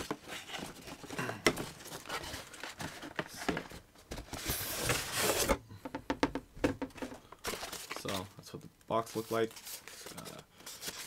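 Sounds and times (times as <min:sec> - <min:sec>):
cardboard rustling: 0:00.0 - 0:05.6, 0:06.8 - 0:08.3.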